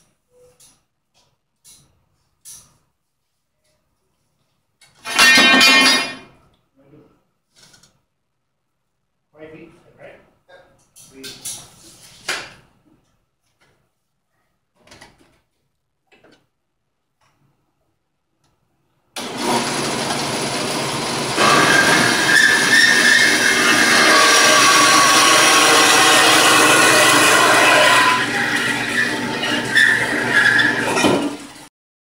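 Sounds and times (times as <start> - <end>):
bandsaw cutting metal: 19.2 - 31.7.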